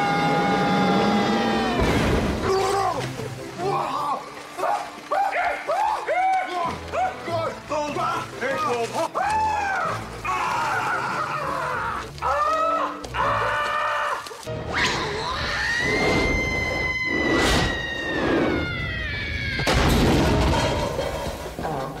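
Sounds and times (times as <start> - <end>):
film music: 0.0 - 22.0
crash: 19.6 - 21.9.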